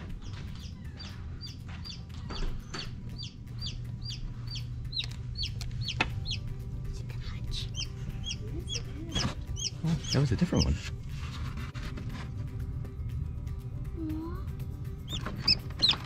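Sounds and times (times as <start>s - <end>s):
baby chicks peeping: 0.0s - 6.6s, 7.5s - 10.9s, 15.0s - 16.0s
low steady hum: 0.0s - 15.4s.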